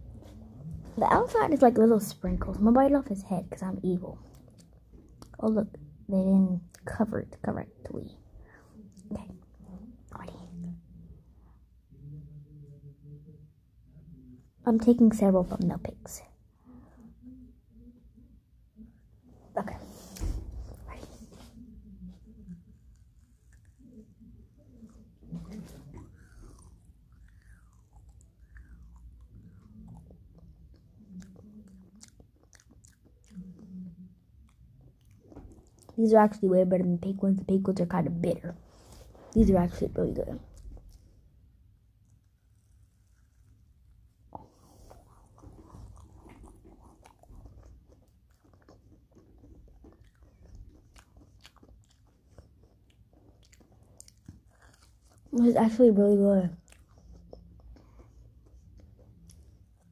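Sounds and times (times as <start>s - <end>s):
person chewing marshmallow: 22.4s - 36.0s, 40.4s - 59.9s.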